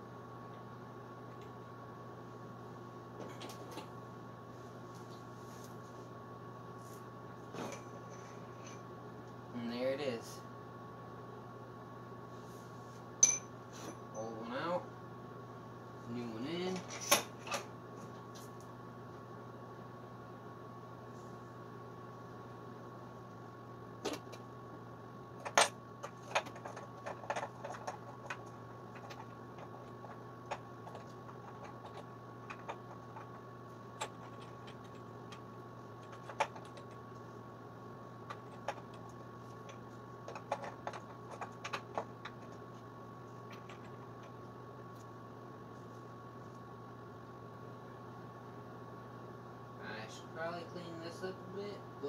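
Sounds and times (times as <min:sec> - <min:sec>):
steady background hum: 0:00.0 - 0:52.0.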